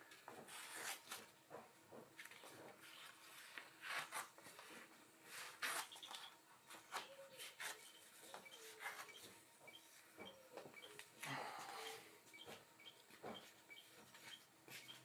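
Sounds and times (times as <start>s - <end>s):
tape being peeled off board: 0.5s - 1.3s, 2.8s - 7.9s
paper crinkling: 2.2s - 9.1s.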